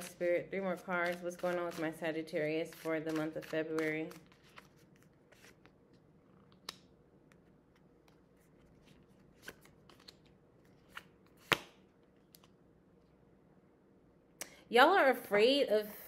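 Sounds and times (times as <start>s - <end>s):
cards being shuffled: 0.0s - 6.8s, 7.7s - 12.6s
sharp card snap: 11.4s - 11.8s.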